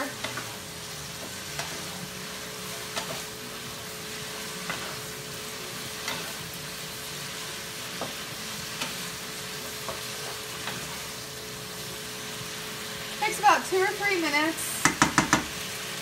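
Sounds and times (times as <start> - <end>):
spatula scraping a pan: 0.0 - 11.3
meat sizzling in a skillet: 0.0 - 16.0.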